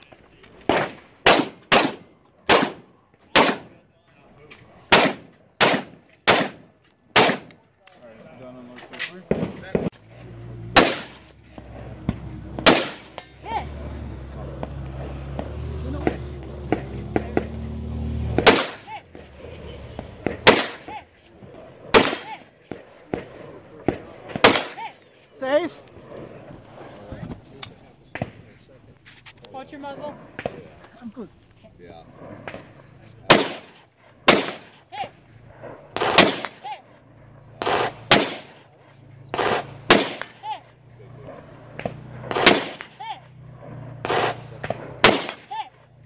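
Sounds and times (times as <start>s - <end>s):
rifle shots: 0.6s - 3.8s, 4.9s - 7.6s, 10.7s - 13.3s, 18.2s - 19.2s, 20.2s - 21.0s, 21.9s - 24.9s, 32.4s - 34.8s, 35.6s - 36.7s, 37.6s - 40.6s, 41.3s - 43.0s, 43.6s - 45.6s.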